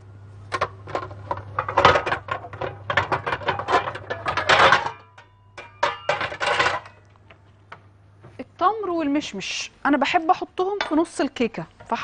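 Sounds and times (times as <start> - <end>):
knocks and clinks of utensils: 1.6 - 7.1.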